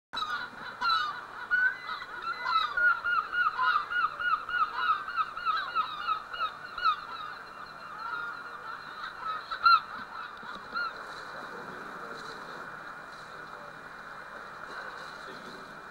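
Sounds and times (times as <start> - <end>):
flock of birds calling: 0.2 - 15.9.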